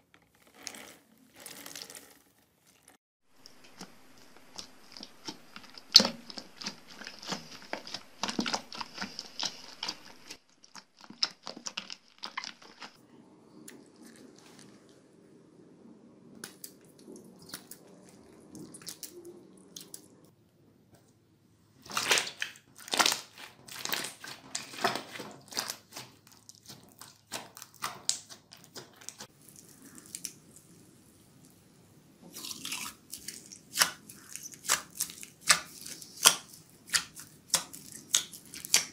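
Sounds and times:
hands squeezing wet slime: 0:03.4 - 0:13.0, 0:16.4 - 0:20.1, 0:21.8 - 0:31.6, 0:32.3 - 0:38.9.

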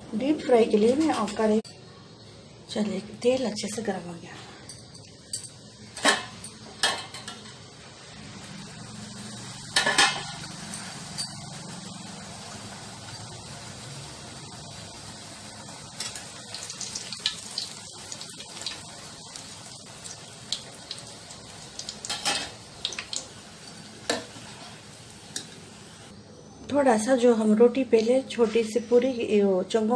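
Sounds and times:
dough sizzling in hot oil: 0:05.1 - 0:26.1.

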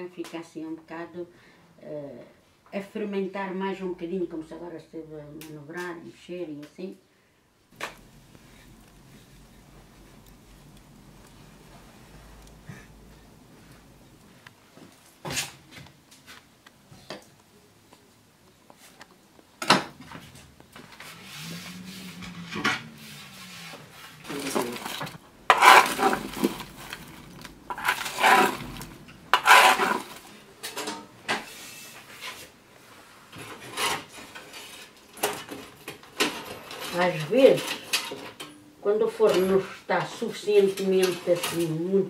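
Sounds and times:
rake scraping embers in oven: 0:07.8 - 0:14.4, 0:20.0 - 0:38.3.

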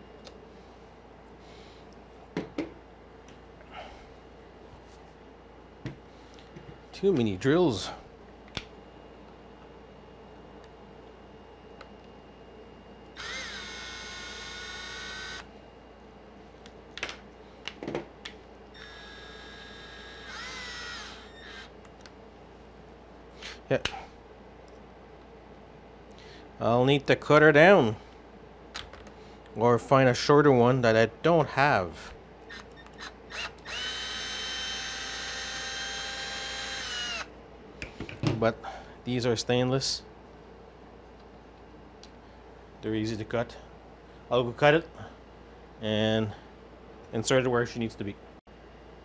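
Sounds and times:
cordless drill whining: 0:13.2 - 0:15.5, 0:18.8 - 0:21.7, 0:32.5 - 0:37.3.

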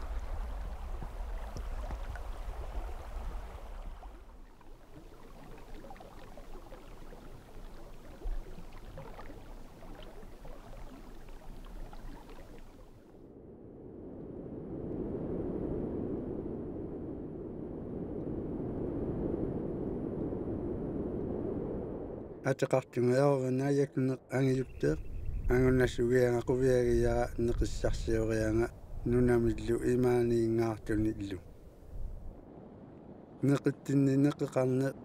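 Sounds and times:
waves lapping on gravel beach: 0:00.0 - 0:13.0
wind rumbling on microphone: 0:00.0 - 0:22.5, 0:24.3 - 0:35.0.

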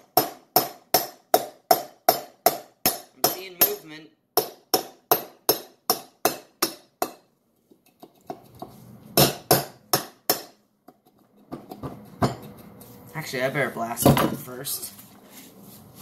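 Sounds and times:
hammer striking steel hub: 0:00.0 - 0:07.3, 0:09.2 - 0:10.6.

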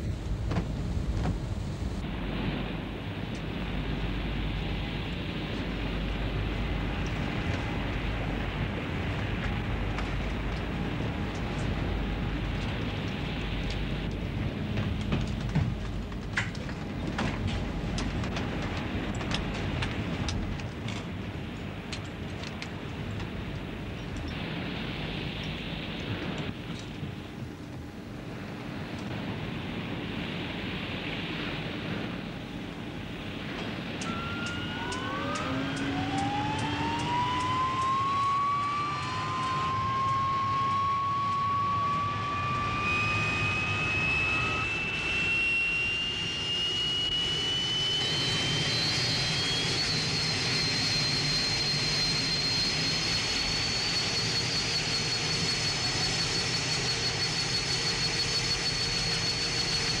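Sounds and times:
engine and rotor rush: 0:00.0 - 1:00.0
helicopter engine whine: 0:32.5 - 1:00.0.

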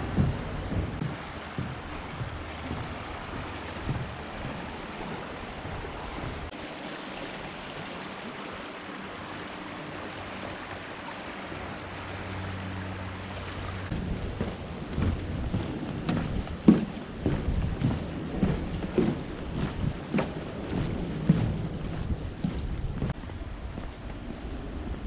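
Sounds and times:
footsteps on wooden planks: 0:00.0 - 0:06.5, 0:13.9 - 0:24.3
creek water rushing: 0:00.0 - 0:24.9.

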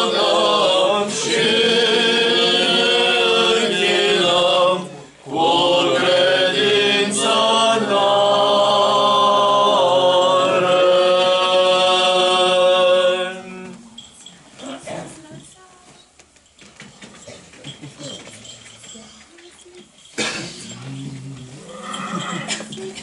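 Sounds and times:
voices chanting long held notes: 0:00.0 - 0:13.9.

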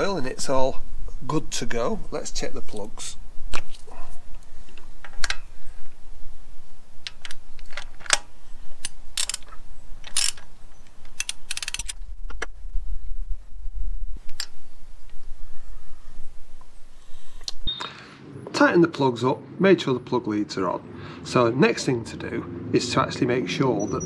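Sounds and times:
ratchet wrench clicking: 0:08.8 - 0:10.4, 0:11.0 - 0:12.0
low rumble: 0:11.8 - 0:17.0.

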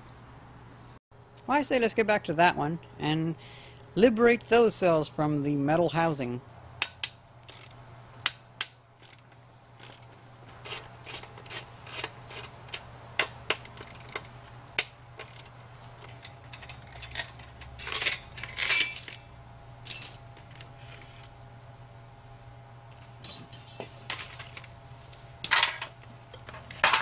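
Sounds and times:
ratchet wrench clicking: 0:06.9 - 0:07.8, 0:09.0 - 0:09.2, 0:09.8 - 0:10.1, 0:13.5 - 0:14.3, 0:15.2 - 0:15.5
metal rods clinking: 0:16.1 - 0:19.2
metal rods scraping: 0:23.2 - 0:24.1.

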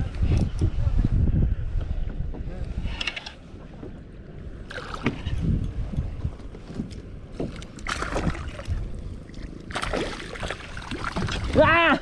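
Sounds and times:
wind rumble on microphone: 0:00.0 - 0:12.0
water lapping against kayak hull: 0:03.8 - 0:05.6, 0:06.6 - 0:11.7.

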